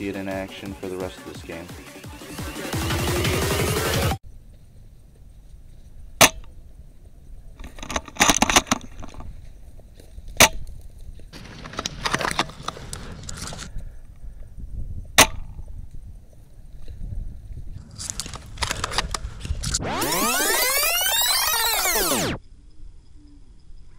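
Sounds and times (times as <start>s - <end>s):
clicking and rustling: 7.6s - 9.4s, 10.3s - 13.8s, 17.8s - 19.8s.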